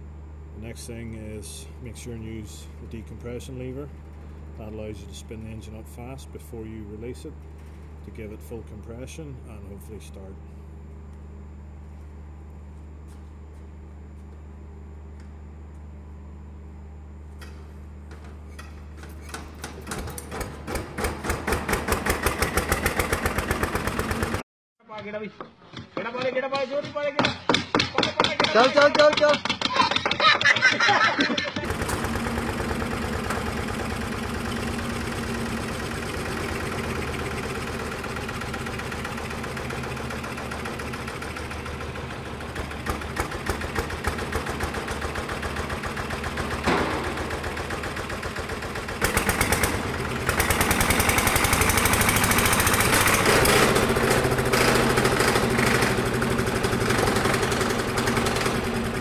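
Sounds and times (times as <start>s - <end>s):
diesel engine running: 21.0s - 24.4s, 31.6s - 59.0s
engine knock: 21.0s - 24.4s, 31.6s - 59.0s.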